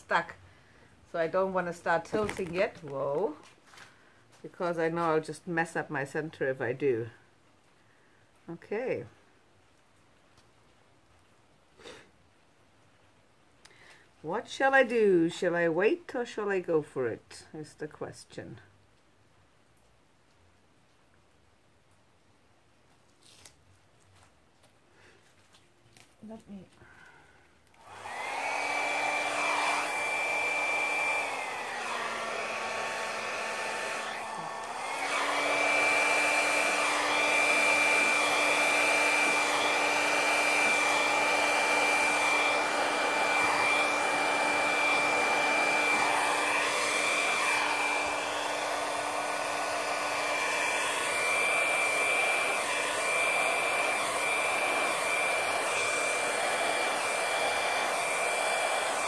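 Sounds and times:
hair dryer blowing: 1.2s - 3.4s, 27.8s - 59.0s.

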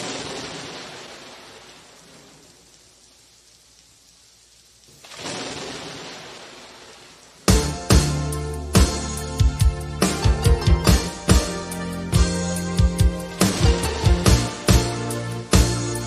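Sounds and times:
rain rushing: 0.0s - 16.0s
drum hit and bass: 7.5s - 16.0s.

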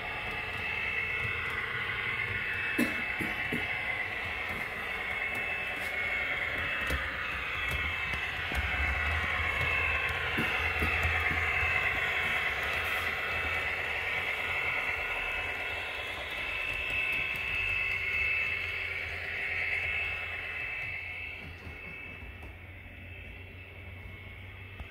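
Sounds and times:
model train motor whirring: 0.0s - 24.9s
wheels clicking on rails: 0.0s - 24.9s.

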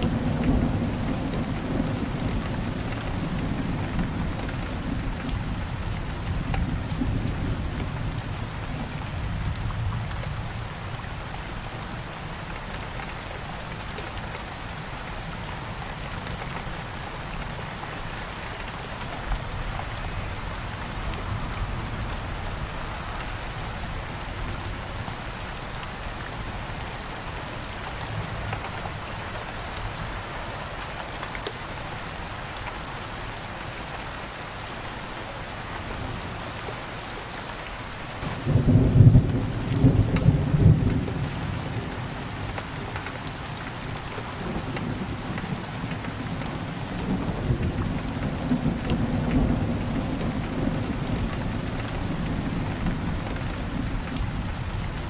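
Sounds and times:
heavy rain on window glass: 0.0s - 55.0s
low rumble of thunder: 38.2s - 42.4s, 44.1s - 55.0s.

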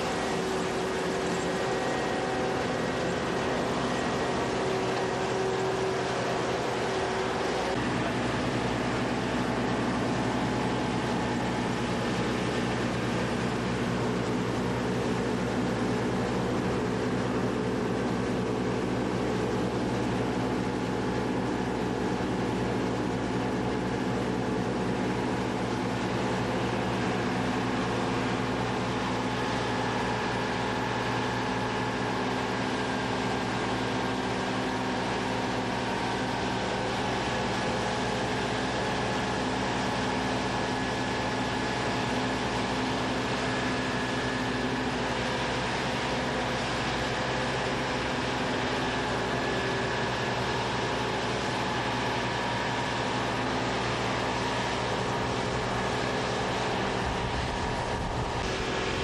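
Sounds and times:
combine harvester droning: 0.0s - 59.0s.

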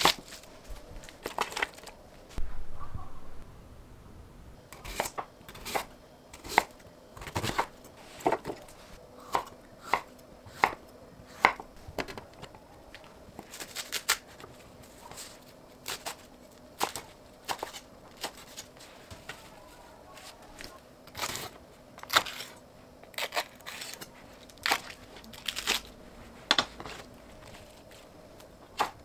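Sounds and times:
knife slicing vegetables: 4.8s - 8.6s.

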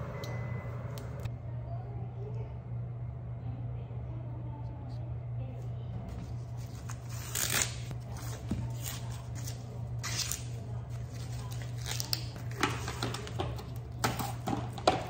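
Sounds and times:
corn husks ripping: 7.1s - 7.9s.

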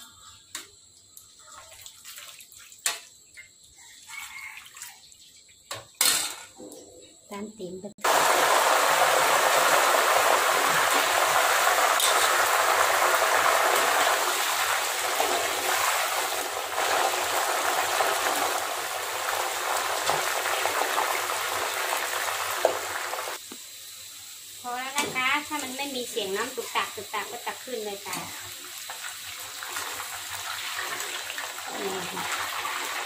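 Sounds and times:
food frying in hot oil: 8.0s - 33.0s.

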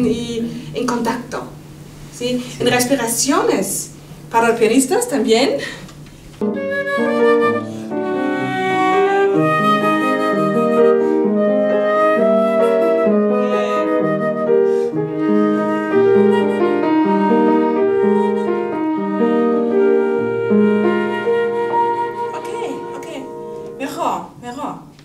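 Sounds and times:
flute melody: 6.4s - 24.2s
piano accompaniment: 6.4s - 25.0s.

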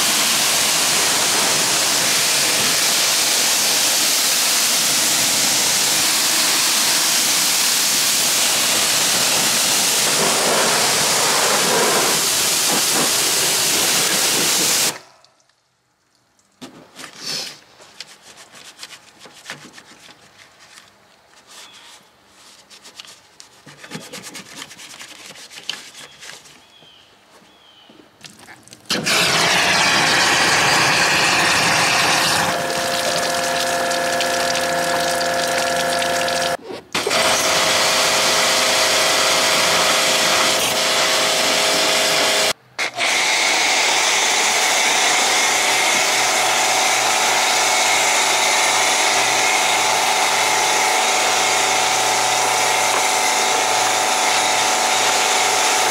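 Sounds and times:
pressure washer spraying water: 0.0s - 15.1s, 28.9s - 55.9s
brush scrubbing: 9.1s - 14.9s, 17.0s - 26.7s
running water: 28.3s - 36.6s
steady motor hum: 29.0s - 42.6s, 43.4s - 55.9s.

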